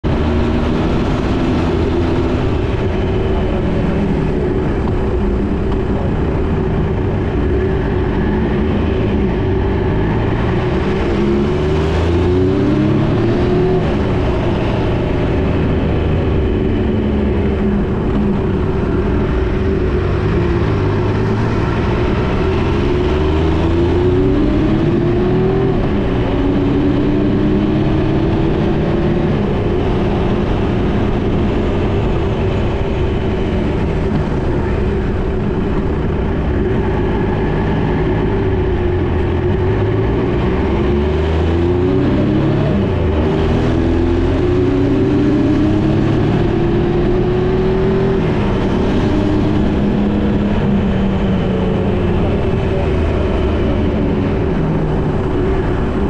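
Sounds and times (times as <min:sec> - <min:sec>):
motorcycle engine revving: 0:00.0 - 0:56.0
road and wind noise: 0:00.0 - 0:56.0.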